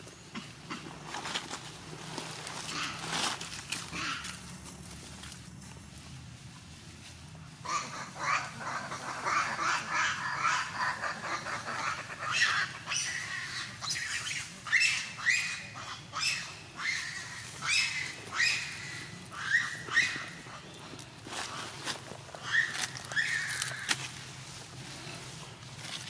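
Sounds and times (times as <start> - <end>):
monkeys squealing calls: 7.6 - 20.7, 22.4 - 24.1.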